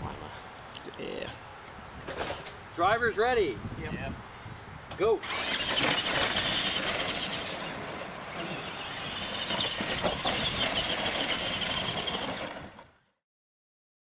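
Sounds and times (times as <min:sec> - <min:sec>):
tyres on gravel: 0:05.2 - 0:13.0
electric motors and gears whining: 0:05.2 - 0:13.1.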